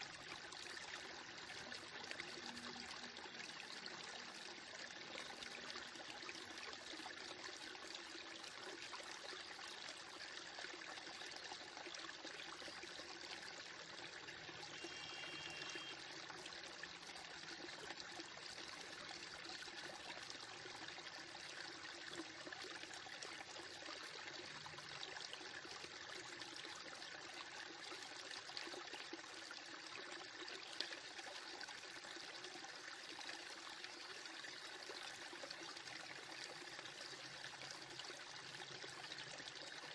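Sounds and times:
faint steady hiss: 14.4 - 16.2.

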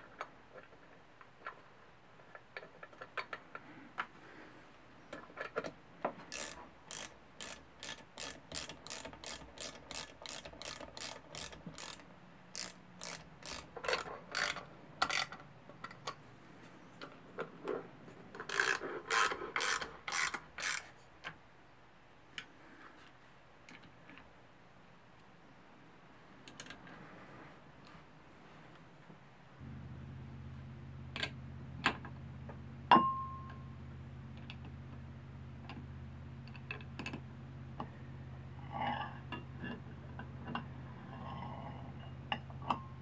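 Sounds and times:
socket ratchet wrench clicking: 6.3 - 15.4, 18.4 - 20.9.

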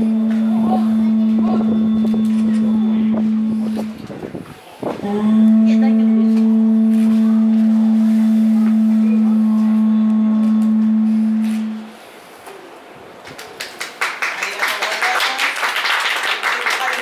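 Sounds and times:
conch-shell trumpet long note: 0.0 - 12.1.

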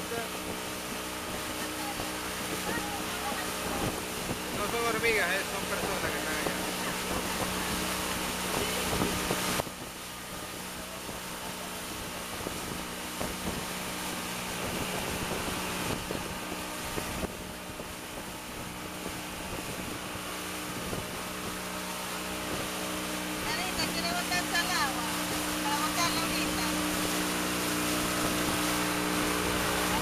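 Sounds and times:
motorboat engine humming: 0.0 - 30.0
water noise: 0.0 - 30.0
wind: 0.0 - 30.0.

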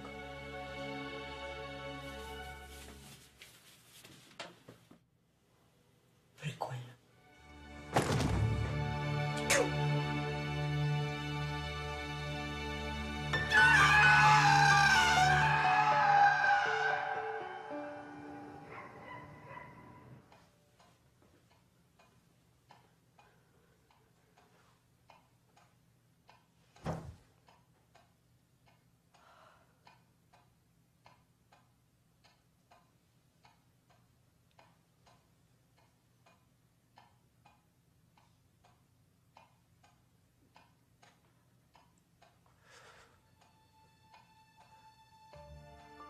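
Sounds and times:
loud thump: 7.9 - 8.8
clock ticking: 20.3 - 45.6.

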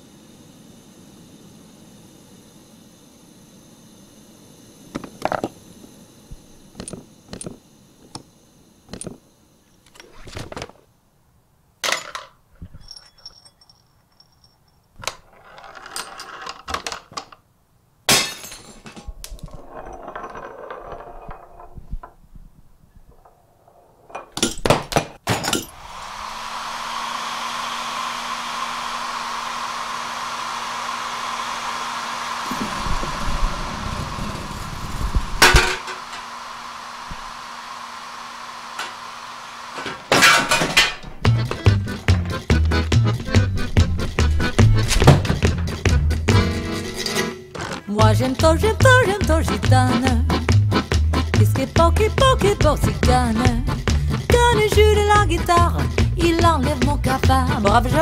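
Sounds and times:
hair dryer whirring: 25.6 - 46.0.

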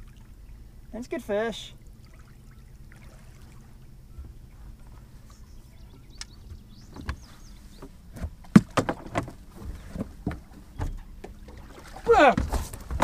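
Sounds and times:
low steady hum: 0.0 - 13.0
knocks and clunks on boat: 3.8 - 13.0.

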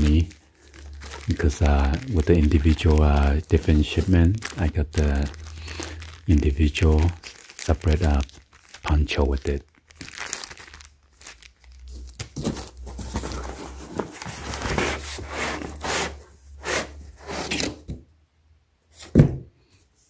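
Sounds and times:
plastic packaging crinkling: 0.0 - 16.2.

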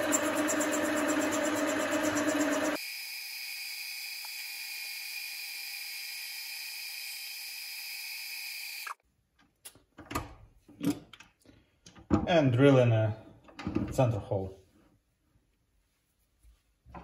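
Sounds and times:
lathe high-pitched whine: 0.0 - 9.0.

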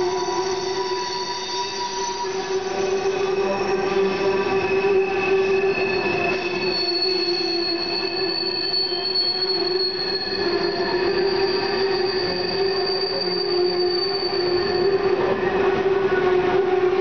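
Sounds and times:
piercing high squeal: 0.0 - 15.7
train wheels squealing: 0.0 - 16.4.

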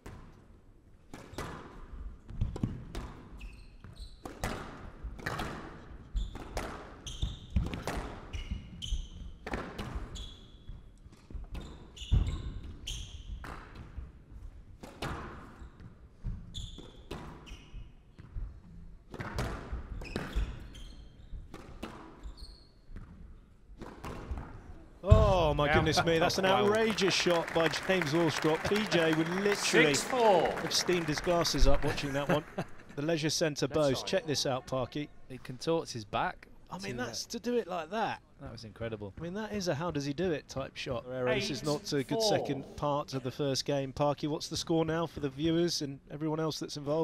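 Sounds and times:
squash ball hitting rackets and walls: 1.1 - 14.1, 14.7 - 24.6
shoes squeaking on wooden floor: 3.3 - 4.2, 11.5 - 13.4.

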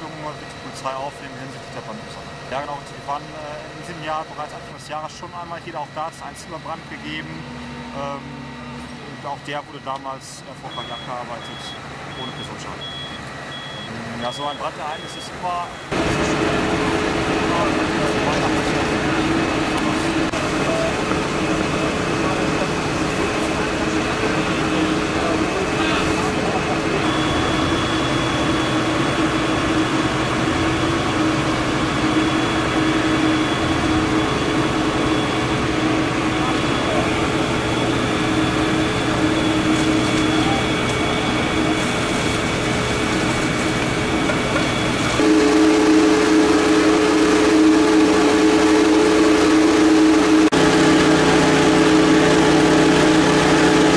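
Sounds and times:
faint high whine: 0.0 - 42.3
fire engine pumps humming: 0.0 - 53.9.

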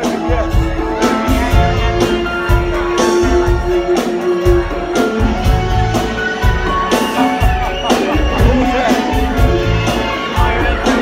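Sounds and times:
guitar: 0.0 - 11.0
live band playing rock: 0.0 - 11.0.

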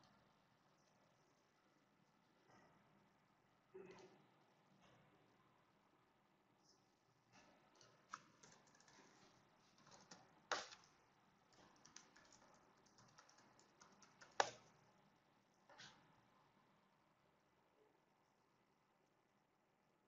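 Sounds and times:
mouse and keyboard clicks: 7.4 - 9.2, 9.8 - 10.9, 11.5 - 14.8.

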